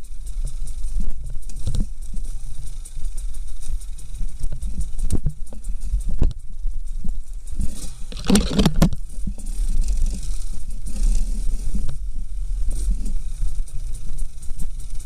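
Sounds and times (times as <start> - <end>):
dirt bike engine at low revs: 0.0 - 15.0
bike knocking and rattling over stones: 1.1 - 12.0.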